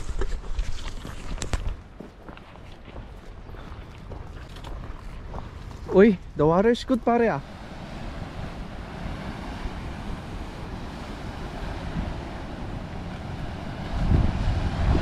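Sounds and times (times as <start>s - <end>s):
wind rumbling on microphone: 0.0s - 15.0s
surf breaking against rocks: 5.3s - 15.0s.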